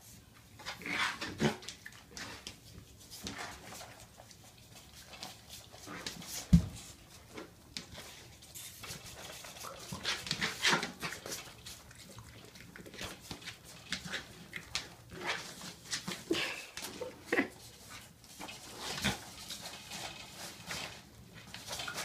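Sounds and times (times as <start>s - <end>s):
pig noises: 0.6s - 2.4s.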